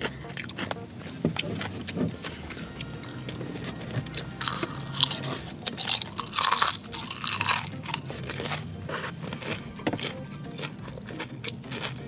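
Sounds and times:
chewing noodles: 0.0 - 12.0
crisp vegetable crunches: 4.1 - 12.0.

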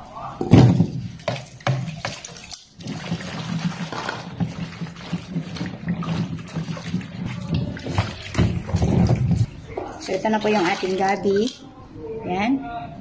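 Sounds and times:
tap water running into basin: 0.5 - 11.6
hands rubbing in water: 1.0 - 11.6.

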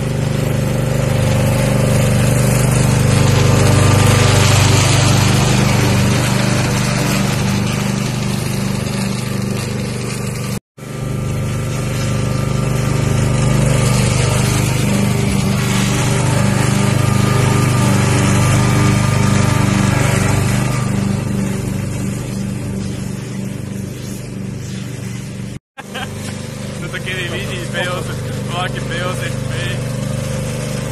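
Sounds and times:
lawn tractor engine mowing: 0.0 - 30.9.

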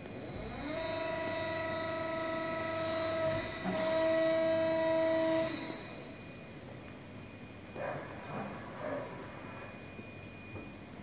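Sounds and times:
hydraulic press whining: 0.0 - 6.4.

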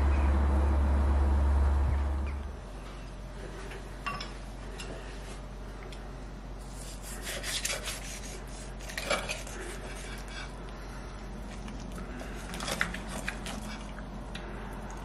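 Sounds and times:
knife scraping and clinking on plate: 8.8 - 10.5.

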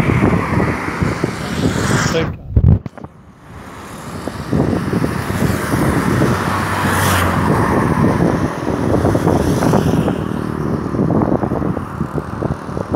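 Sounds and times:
highway traffic noise: 0.0 - 12.9
vehicle passing at speed: 3.1 - 12.9.

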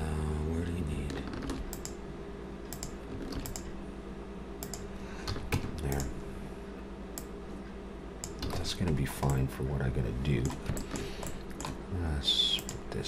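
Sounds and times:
steady low hum: 0.0 - 13.0
keyboard keys clicking: 8.2 - 9.4.

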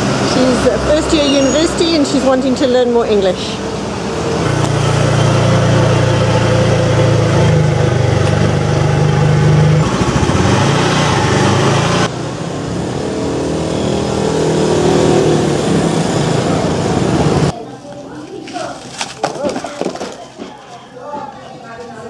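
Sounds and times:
vehicle engine: 0.0 - 17.5.

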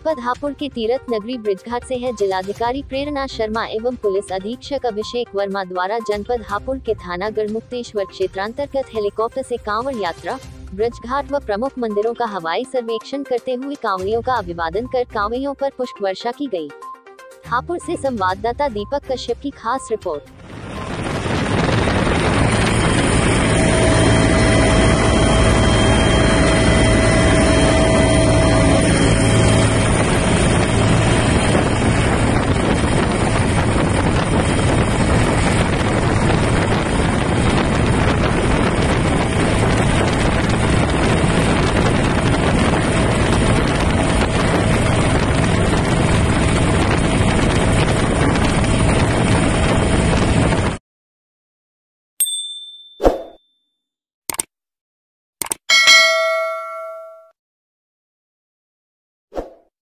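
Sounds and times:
helicopter engine and rotor drone: 20.3 - 50.8.

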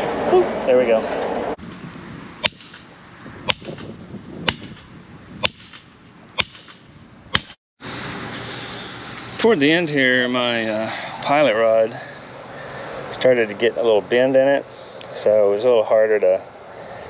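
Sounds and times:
hammer striking metal rod: 6.4 - 7.6.

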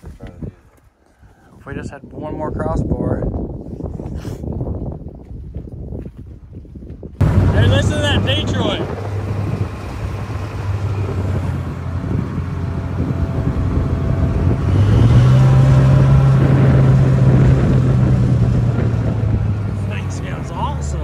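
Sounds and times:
diesel engine running and revving: 7.2 - 21.0.

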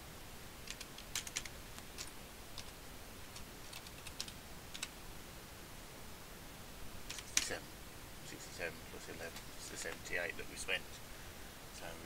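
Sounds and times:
faint keyboard typing: 0.6 - 5.0, 7.0 - 7.6.

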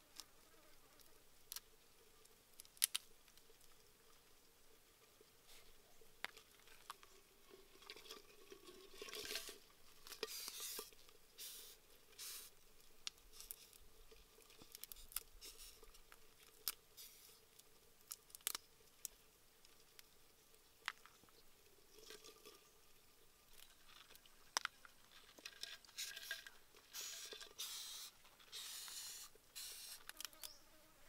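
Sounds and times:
fingers handling beetles: 27.0 - 30.6.

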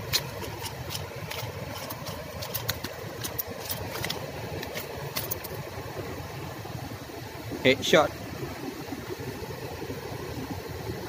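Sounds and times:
fish flopping on concrete: 0.0 - 5.6.

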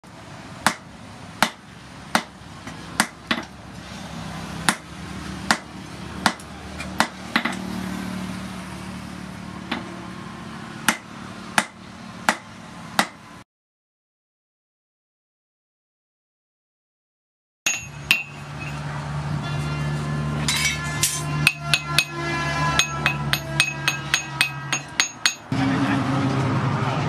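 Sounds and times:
hammer striking hot steel: 4.7 - 4.9, 5.5 - 7.6, 10.9 - 13.2, 17.7 - 18.8, 20.4 - 25.6.

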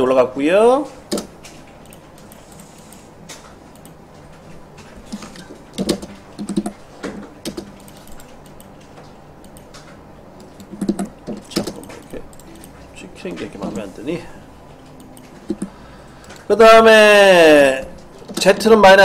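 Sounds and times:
computer keyboard typing: 1.1 - 4.0, 5.0 - 13.9, 14.8 - 16.5.

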